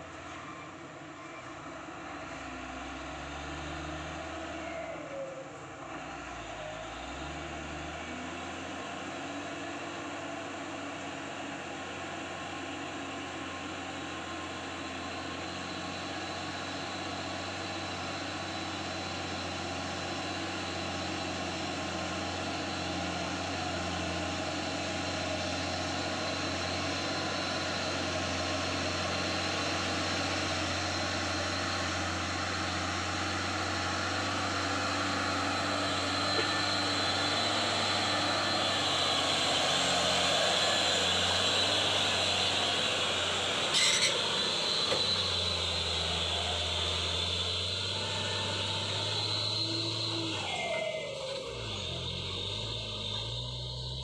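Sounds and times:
truck diesel engine running: 5.6s - 54.0s.

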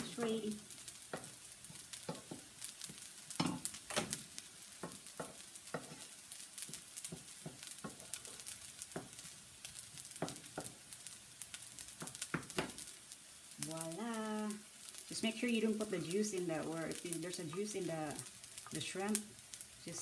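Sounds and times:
food sizzling in a frying pan: 0.0s - 20.0s
wooden spoon scraping a pan: 0.9s - 11.1s
spoon knocking against pan: 10.2s - 10.8s.

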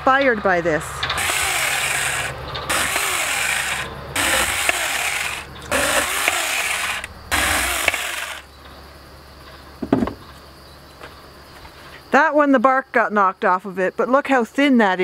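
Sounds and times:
electric chainsaw cutting log: 1.1s - 8.5s.

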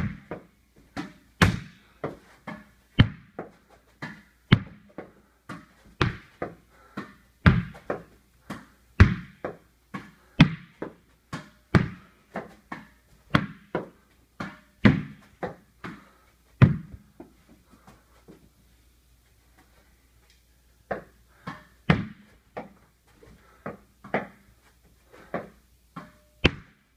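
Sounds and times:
racket hitting tennis ball: 0.0s - 17.3s, 20.9s - 22.8s, 25.3s - 26.8s
tennis ball bouncing: 0.0s - 17.3s, 20.9s - 22.8s, 23.7s - 24.4s, 25.3s - 26.8s.

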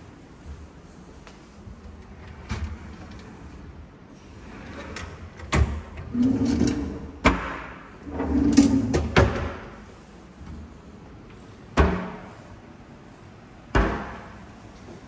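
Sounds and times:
wire baskets sliding on runners: 6.1s - 7.0s.

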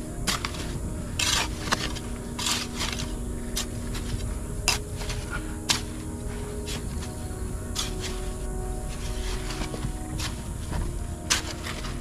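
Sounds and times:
hoe chopping into loose dirt: 0.2s - 6.0s.

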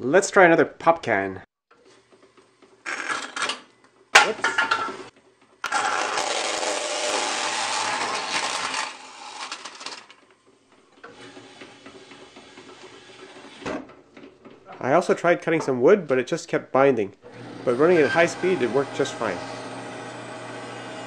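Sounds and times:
bandsaw cutting metal can: 5.6s - 10.2s.

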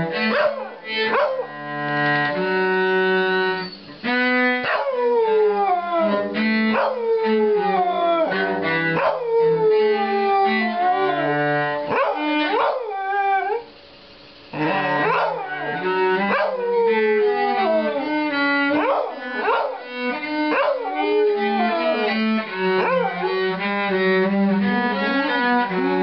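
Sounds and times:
cello notes: 0.0s - 26.0s
dog howling: 0.2s - 1.5s, 4.6s - 13.7s, 14.5s - 23.6s.

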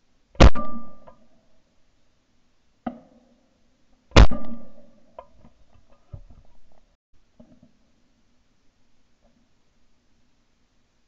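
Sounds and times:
shotgun shots: 0.4s - 1.1s, 4.2s - 4.8s.

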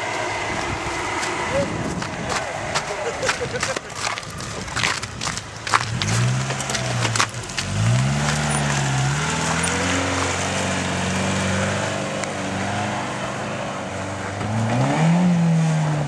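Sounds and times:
car engine revving under load: 0.0s - 16.0s.

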